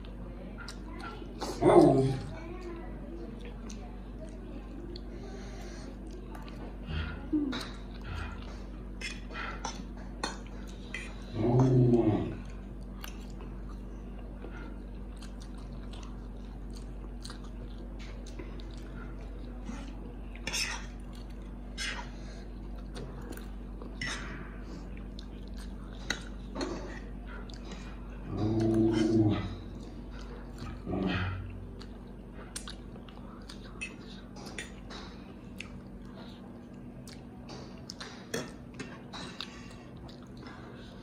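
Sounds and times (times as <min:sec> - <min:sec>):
low electrical hum: 0:00.0 - 0:41.0
chewing and slurping: 0:02.2 - 0:41.0
low moaning sound: 0:11.1 - 0:12.7, 0:28.2 - 0:29.9.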